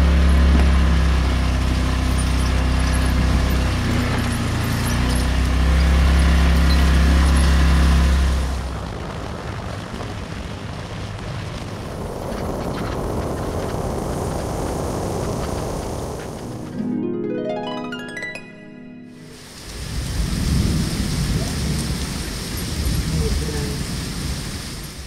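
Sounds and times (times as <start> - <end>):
motor scooter engine running: 0.0 - 10.3
wind and road noise: 0.0 - 16.8, 19.3 - 25.0.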